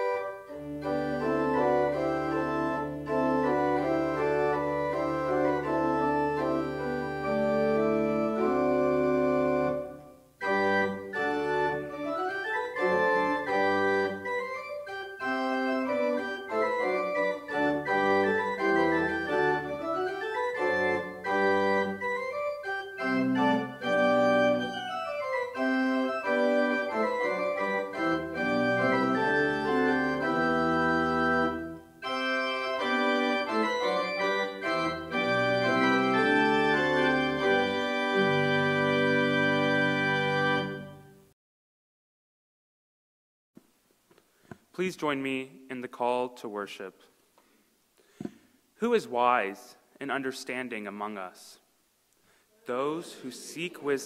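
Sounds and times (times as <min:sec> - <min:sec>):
church organ playing: 0:00.0 - 0:41.3.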